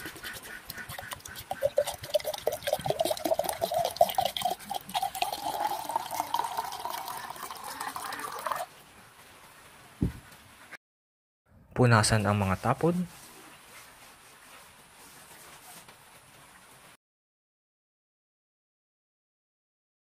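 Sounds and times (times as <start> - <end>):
liquid pouring into glass jar: 1.2 - 8.7.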